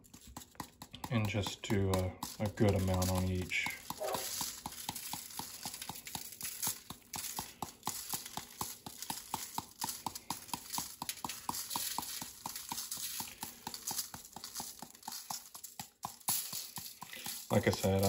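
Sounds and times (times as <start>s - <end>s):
seasoning shaker rattling: 0.0s - 18.0s.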